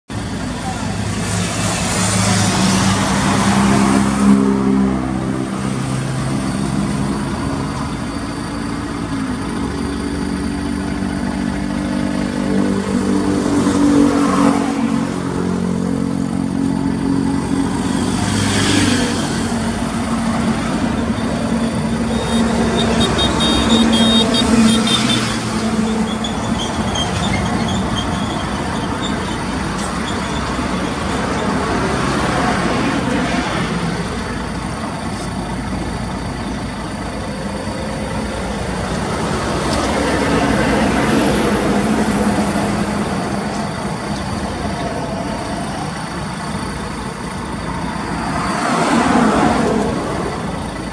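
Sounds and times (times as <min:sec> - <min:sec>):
diesel truck engine running: 0:00.1 - 0:50.9
traffic passing: 0:00.1 - 0:50.9.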